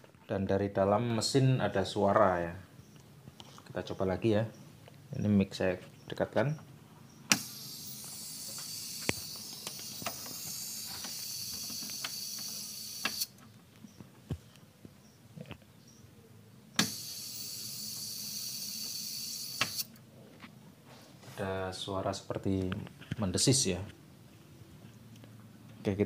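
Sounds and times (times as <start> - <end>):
high-pitched television hiss: 7.3 - 13.3.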